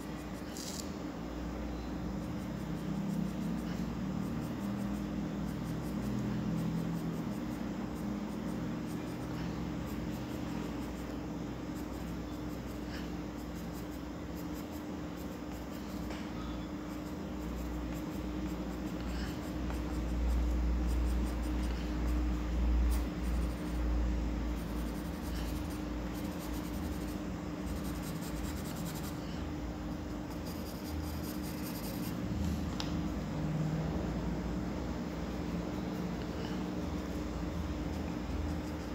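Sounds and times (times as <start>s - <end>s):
steady low hum: 0.0s - 38.9s
pencil scratching on paper: 2.1s - 16.2s, 16.8s - 23.8s, 24.5s - 29.3s, 30.0s - 32.2s, 35.7s - 38.9s.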